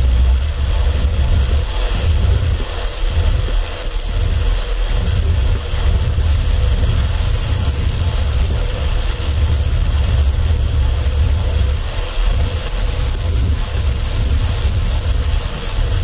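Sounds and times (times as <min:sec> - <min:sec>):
faint hum: 0:00.0 - 0:16.0
wind buffeting microphone: 0:00.0 - 0:16.0.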